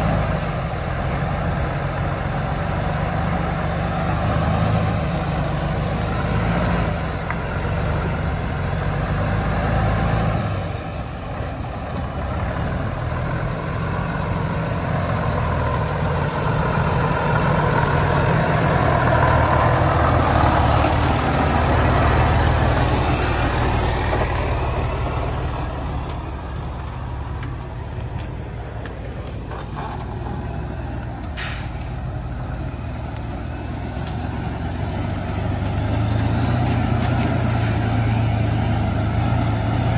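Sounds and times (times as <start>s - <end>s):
heavy truck engine running: 0.0s - 39.9s
brief hiss: 31.3s - 32.0s.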